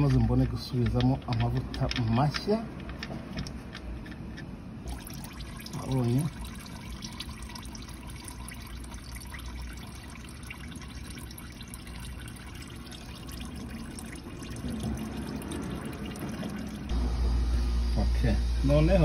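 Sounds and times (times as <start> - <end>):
oil dripping: 4.8 - 16.9
oil trickling: 4.8 - 16.9.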